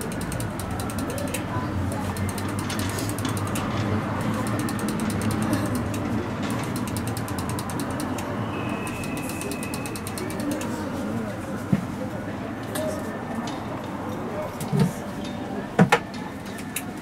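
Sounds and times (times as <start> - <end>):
ratchet-like clicking: 0.0 - 10.7.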